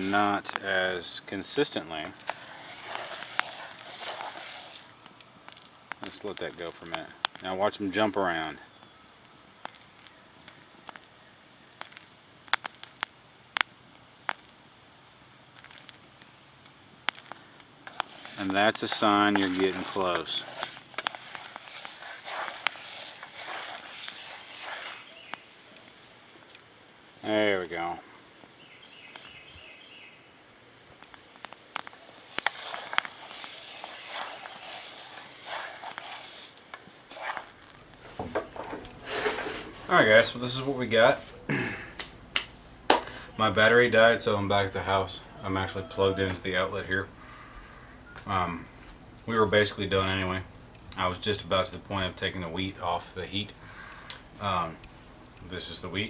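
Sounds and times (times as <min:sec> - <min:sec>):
wheat kernels popping in pan: 0:00.0 - 0:27.9, 0:30.8 - 0:39.1, 0:42.0 - 0:43.2
faint hiss: 0:00.0 - 0:56.0
wooden spoon scraping pot: 0:01.4 - 0:07.4, 0:17.1 - 0:25.3, 0:32.3 - 0:40.3.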